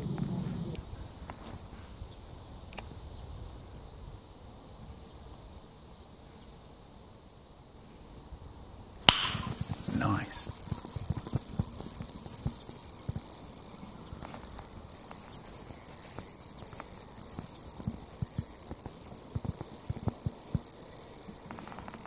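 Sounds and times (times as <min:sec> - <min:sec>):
insects buzzing: 0:08.8 - 0:22.0.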